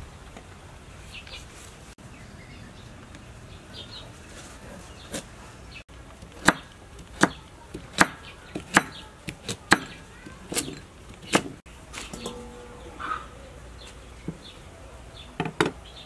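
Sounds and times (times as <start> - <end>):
cleaver chopping on wooden block: 6.2 - 11.6.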